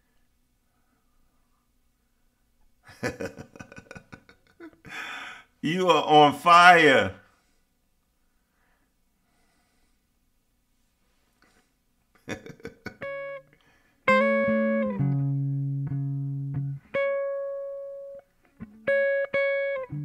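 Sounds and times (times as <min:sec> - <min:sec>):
electric guitar notes: 0:14.1 - 0:20.0.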